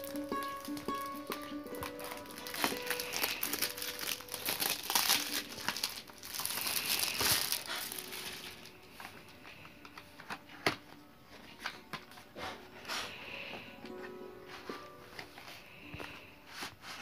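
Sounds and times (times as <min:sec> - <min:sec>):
plastic wrap crinkling: 0:00.0 - 0:12.2.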